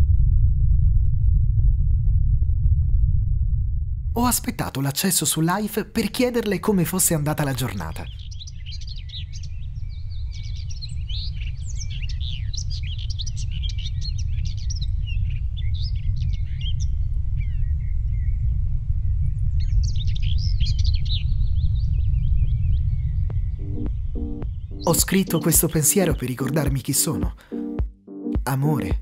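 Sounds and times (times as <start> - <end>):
deep rumble: 0.0 - 4.7, 16.1 - 25.1
small birds chirping: 6.0 - 18.3.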